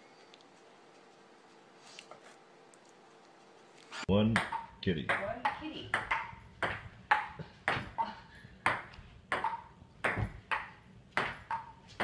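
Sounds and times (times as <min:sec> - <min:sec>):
ping-pong ball hitting paddles and table: 0:04.3 - 0:12.0.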